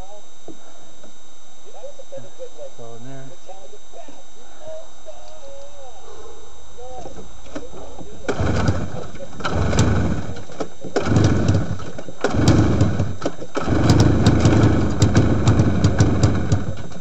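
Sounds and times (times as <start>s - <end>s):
snowmobile engine starting and running: 8.2s - 17.0s.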